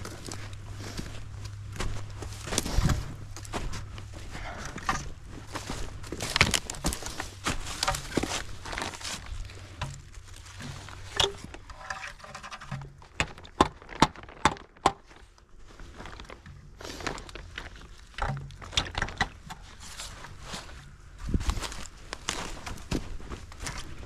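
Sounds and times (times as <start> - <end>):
plastic bag rustling: 5.3 - 18.7
sharp clicks and knocks: 18.1 - 19.8.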